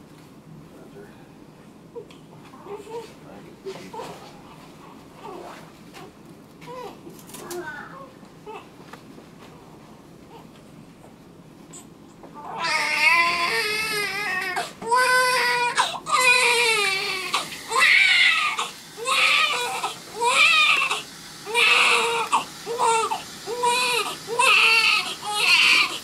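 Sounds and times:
newborn baby crying: 0:12.4 - 0:26.0.

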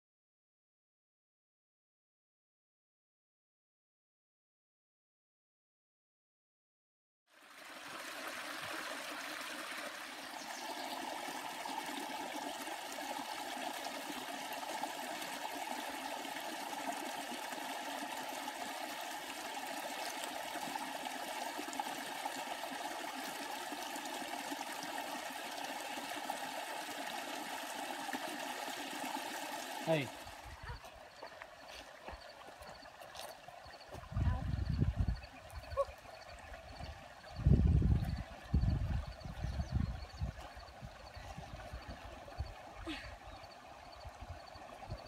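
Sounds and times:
water rushing over rocks: 0:07.4 - 0:34.2.

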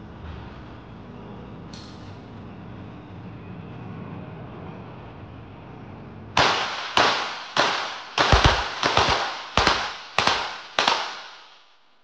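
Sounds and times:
pistol shots echoing: 0:06.4 - 0:11.7.

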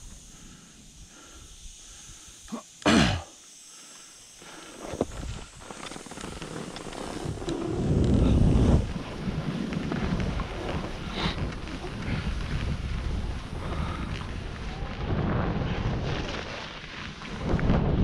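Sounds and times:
skis running over snow: 0:04.4 - 0:18.0
wind rushing over microphone: 0:06.2 - 0:18.0.

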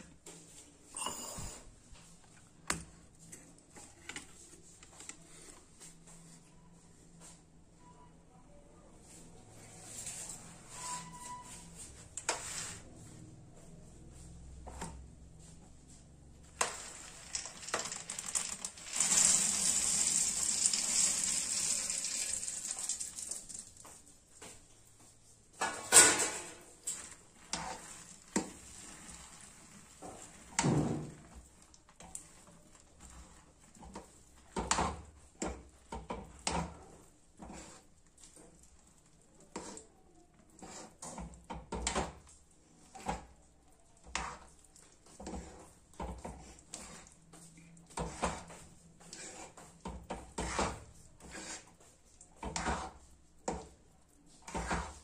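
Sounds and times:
steel spoon scraping a pan: 0:10.0 - 0:12.9, 0:25.6 - 0:30.6, 0:40.6 - 0:41.2, 0:48.0 - 0:51.8, 0:52.5 - 0:53.0, 0:54.5 - 0:55.0
peanuts tipped into syrup: 0:16.6 - 0:23.8
syrup sizzling: 0:16.6 - 0:24.0, 0:26.9 - 0:34.6.

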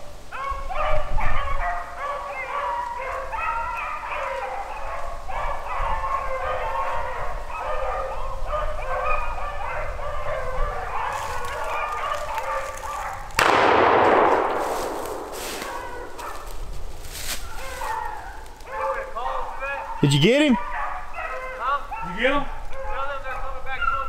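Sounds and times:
dogs baying: 0:00.3 - 0:13.3, 0:14.4 - 0:16.8, 0:17.4 - 0:24.0
shotgun shot echoing: 0:13.4 - 0:16.4.

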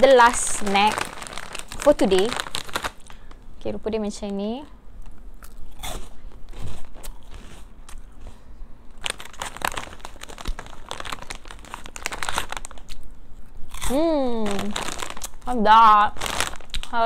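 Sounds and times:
plastic bag crinkling: 0:00.0 - 0:03.4, 0:09.0 - 0:13.0, 0:13.7 - 0:17.0
snack being chewed crunching: 0:05.0 - 0:14.0, 0:14.6 - 0:15.4, 0:16.3 - 0:16.9.

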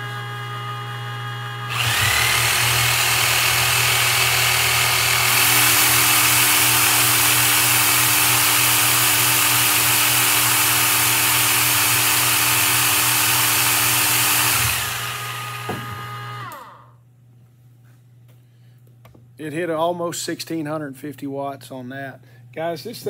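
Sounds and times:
meat grinder motor: 0:00.0 - 0:16.9
power saws running: 0:01.5 - 0:16.9.

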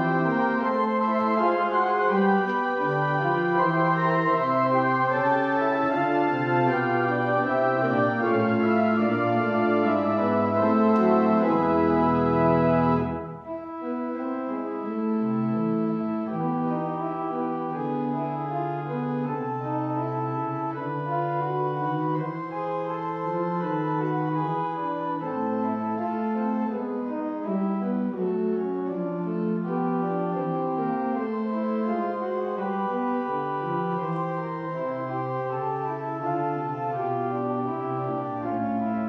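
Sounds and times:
church organ playing chords: 0:00.0 - 0:39.0.

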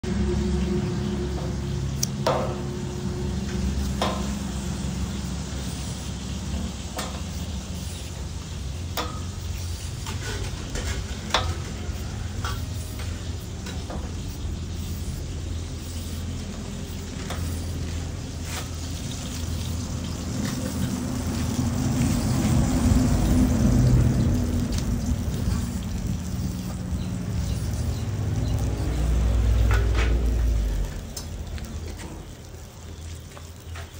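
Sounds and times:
peeler scraping gourd skin: 0:24.7 - 0:29.2.

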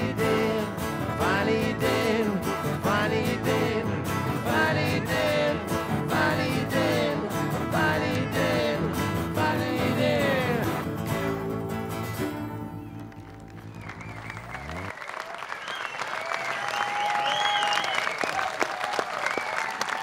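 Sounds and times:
acoustic guitar chord ringing: 0:00.0 - 0:13.0
whistles and cheers: 0:12.5 - 0:20.0
audience applauding: 0:12.6 - 0:20.0.

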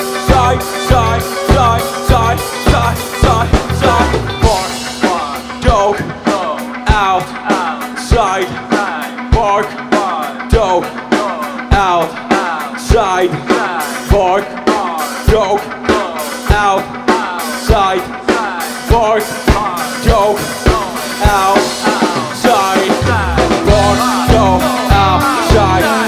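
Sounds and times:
low bass notes: 0:00.0 - 0:06.5, 0:22.5 - 0:26.0
drum kit beat: 0:00.0 - 0:26.0
electric guitar lines: 0:00.0 - 0:26.0.

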